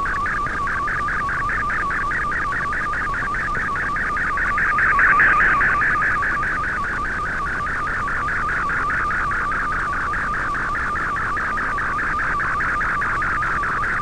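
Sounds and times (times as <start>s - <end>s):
wavering data tones: 0.0s - 14.0s
short low tone blips: 3.6s - 7.4s.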